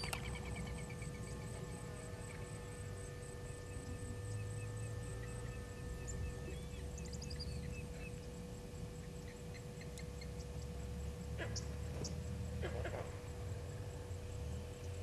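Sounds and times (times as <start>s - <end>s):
faint high chirping: 0.0s - 8.3s
faint hum: 0.0s - 15.0s
low steady rumble: 0.0s - 15.0s.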